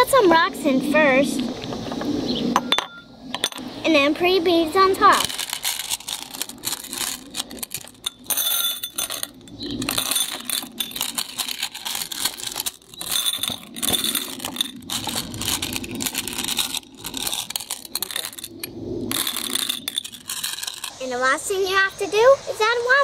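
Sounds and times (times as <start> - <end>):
glass beads clinking and rattling: 5.1 - 21.0.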